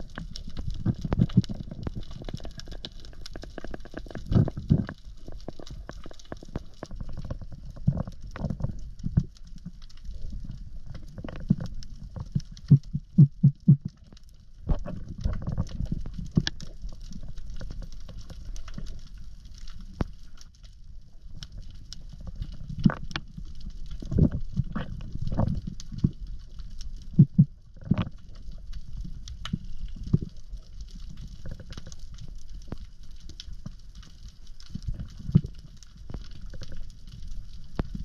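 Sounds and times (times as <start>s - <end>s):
faint high crackle: 0.0s - 38.0s
muffled underwater thumps: 12.7s - 14.0s.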